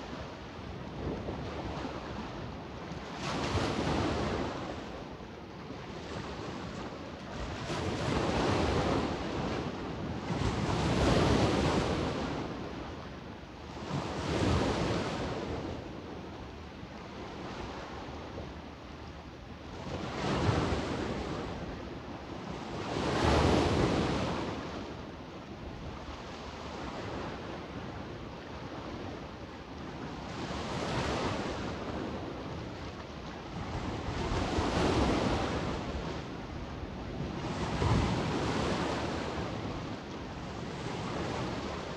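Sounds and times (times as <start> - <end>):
sea waves washing on beach: 19.6 - 41.9.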